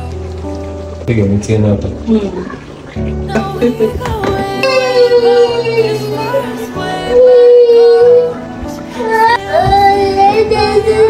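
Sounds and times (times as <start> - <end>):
person singing a song: 3.2 - 11.0.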